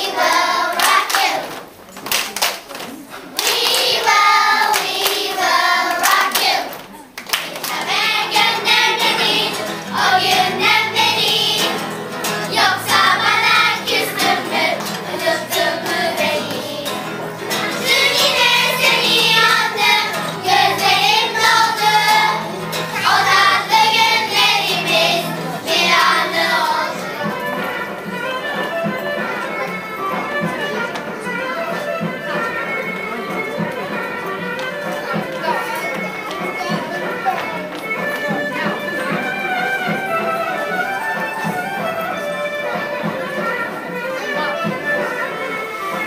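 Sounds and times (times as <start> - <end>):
children's choir singing: 0.0 - 1.8, 3.3 - 28.1
acoustic guitar: 7.0 - 30.7.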